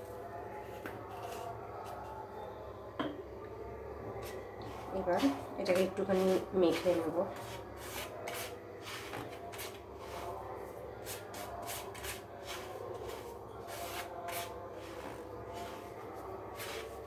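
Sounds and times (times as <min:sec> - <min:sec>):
fingers rubbing dough on plate: 0:04.2 - 0:17.0.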